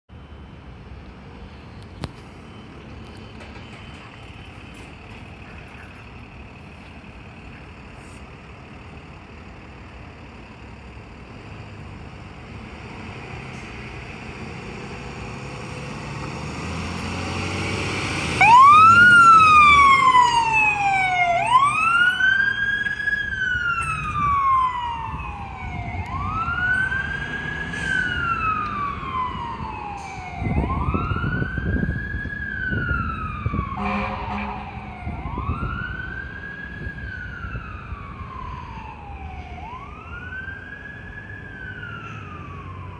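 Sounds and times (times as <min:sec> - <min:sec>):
ambulance engine pulling away: 0:00.2 - 0:42.9
wailing electronic siren: 0:17.0 - 0:42.9
air horn blast: 0:33.8 - 0:34.8.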